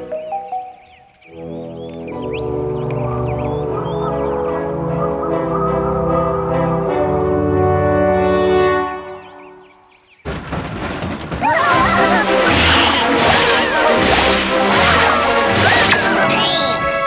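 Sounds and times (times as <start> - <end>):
cartoon music: 11.5 - 17.0.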